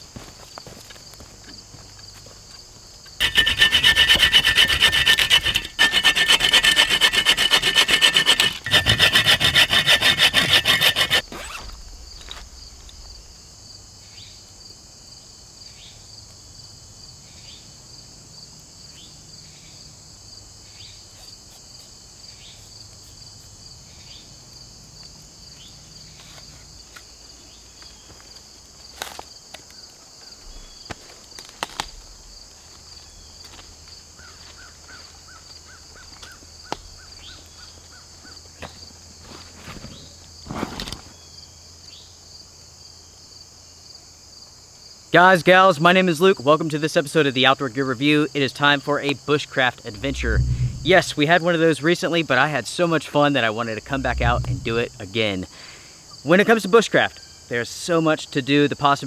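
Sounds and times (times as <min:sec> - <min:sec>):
hand saw cutting a branch: 0:03.2 - 0:11.6.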